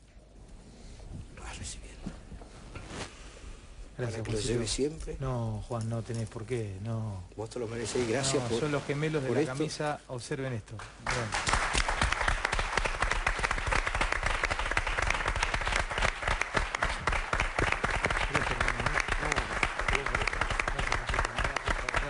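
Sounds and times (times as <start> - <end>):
audience applauding: 11.0 - 22.0.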